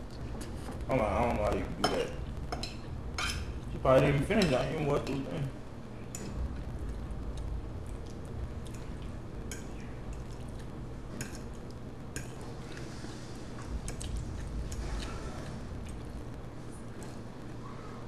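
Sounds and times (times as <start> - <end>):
low steady hum: 0.0 - 18.0
wet chewing: 6.2 - 17.6.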